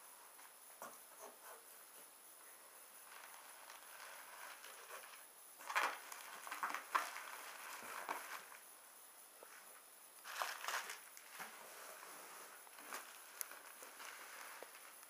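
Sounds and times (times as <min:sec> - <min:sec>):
bubble wrap crinkling: 0:03.0 - 0:08.7, 0:10.2 - 0:15.0.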